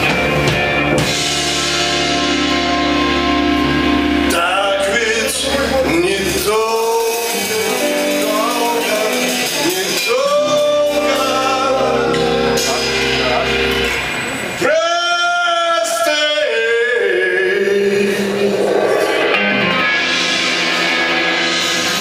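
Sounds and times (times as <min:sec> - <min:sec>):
live rock band playing: 0:00.0 - 0:22.0
person singing: 0:03.8 - 0:13.6, 0:14.6 - 0:19.4.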